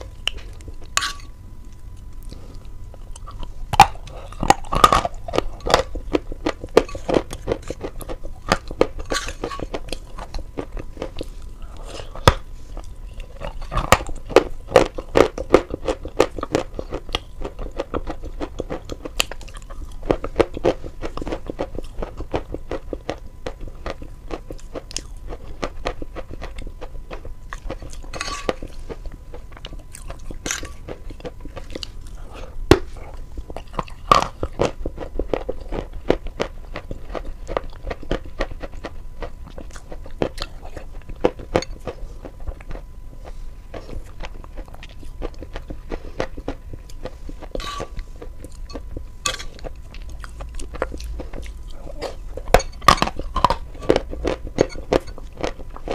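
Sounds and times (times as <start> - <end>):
chewing crunchy chalk: 0.0 - 55.9.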